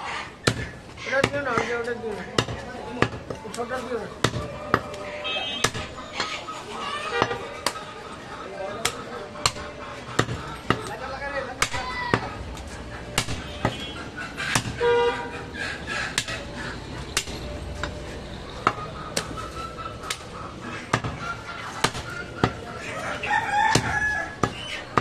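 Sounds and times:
cleaver chopping on wooden block: 0.4s - 1.7s, 2.3s - 3.4s, 5.6s - 5.9s, 8.8s - 11.0s, 13.2s - 13.9s, 14.5s - 14.8s, 16.2s - 16.4s, 20.9s - 21.2s, 23.7s - 25.0s.

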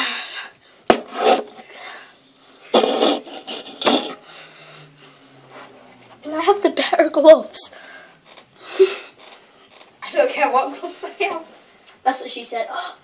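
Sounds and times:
rasping rubbing noise: 2.6s - 4.3s.

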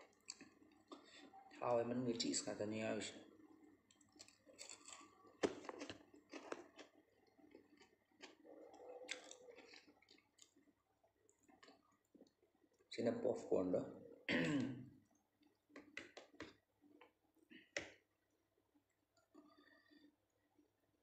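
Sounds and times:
chewing crispy food: 0.0s - 13.0s, 15.0s - 20.8s.

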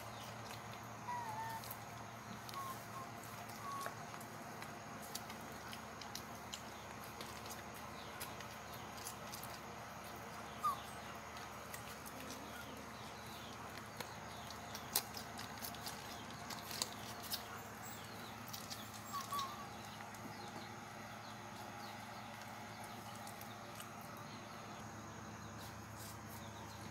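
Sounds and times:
puppies suckling clicks: 0.0s - 24.8s
puppy squeak: 1.1s - 1.7s, 10.6s - 10.9s, 18.9s - 19.6s.

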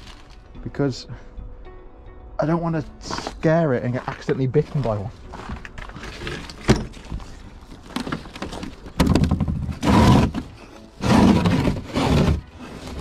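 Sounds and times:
concrete scraping across plastic: 3.0s - 13.0s.

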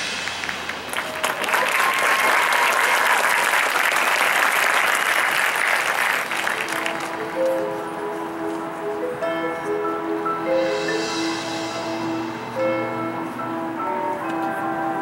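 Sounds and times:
audience applauding: 0.2s - 7.8s.

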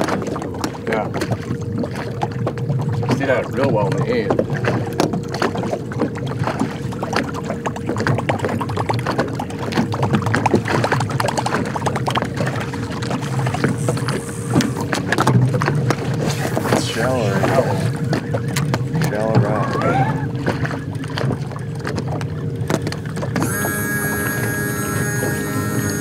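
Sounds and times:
waves slapping against boat hull: 0.0s - 26.0s
faint steady hum: 11.1s - 26.0s.

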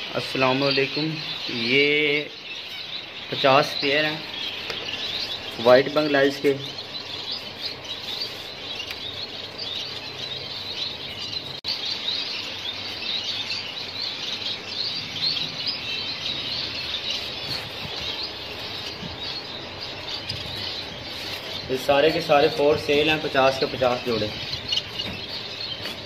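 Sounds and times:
flock of finches chirping: 0.0s - 26.0s.

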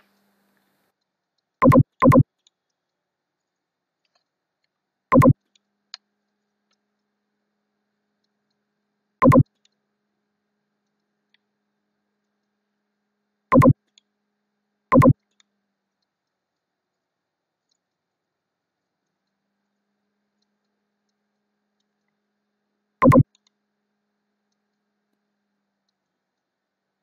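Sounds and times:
computer mouse clicks: 1.6s - 4.3s, 5.1s - 6.0s, 9.2s - 9.8s, 13.5s - 14.1s, 14.9s - 16.4s, 23.0s - 23.6s.

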